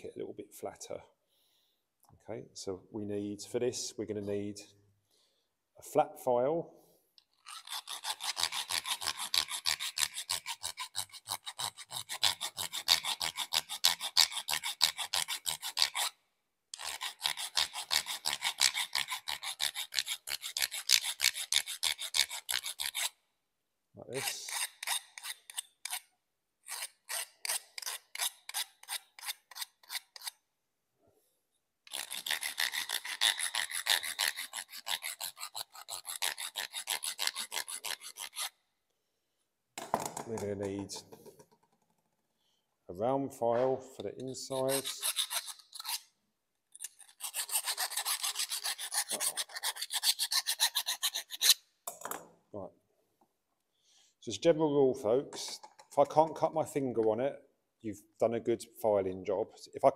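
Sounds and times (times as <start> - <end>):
file rasping on metal pipe: 7.4 - 16.2, 16.8 - 23.2, 24.2 - 26.1, 26.7 - 30.4, 31.9 - 38.6, 44.2 - 46.1, 46.8 - 51.6.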